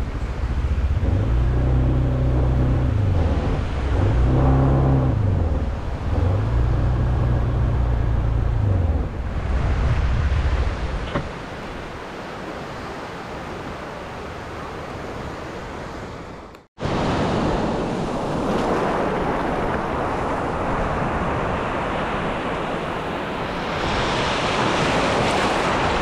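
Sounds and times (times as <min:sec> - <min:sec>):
wind on microphone: 0:00.0 - 0:11.8
sea surf breaking: 0:00.0 - 0:16.2, 0:16.8 - 0:26.0.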